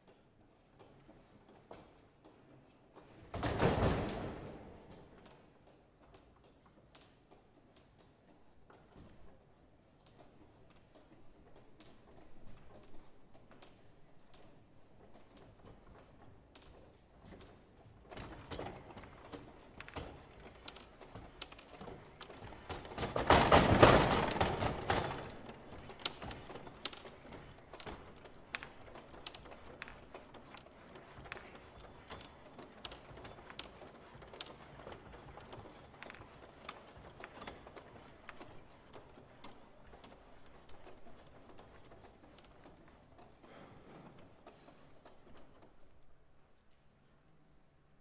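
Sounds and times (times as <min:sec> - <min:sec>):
foosball rods and ball clacking: 0:10.0 - 0:46.2.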